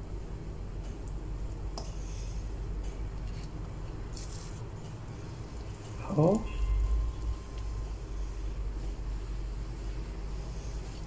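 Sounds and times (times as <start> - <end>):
low background hum: 0.0 - 11.0
hands rustling food: 3.2 - 4.7.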